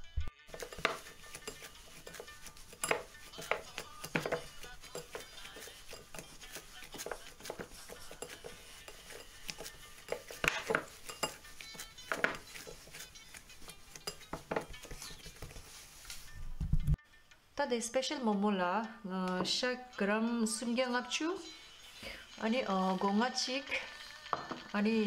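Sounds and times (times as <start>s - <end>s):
dough knocking against bowl: 0.6s - 5.3s, 6.0s - 13.1s, 14.1s - 15.6s.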